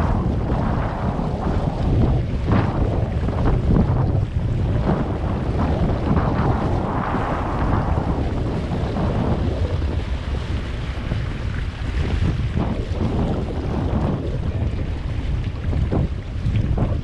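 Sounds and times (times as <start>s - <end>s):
water rushing along hull: 0.0s - 17.0s
wind buffeting microphone: 0.0s - 17.0s.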